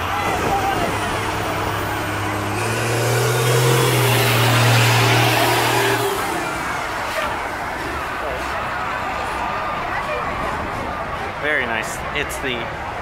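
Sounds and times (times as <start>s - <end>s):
tyre and wind noise: 0.0s - 5.5s
bus engine drone: 0.0s - 13.0s.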